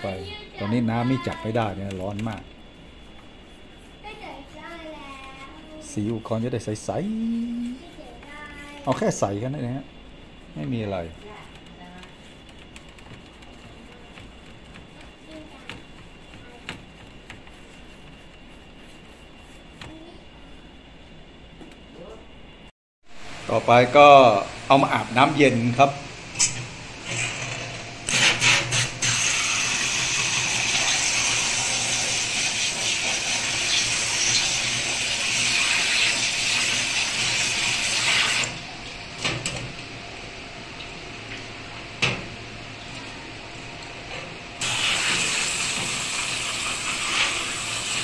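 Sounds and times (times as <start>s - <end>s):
faucet sprayer spraying water: 28.1s - 38.6s, 44.6s - 48.0s.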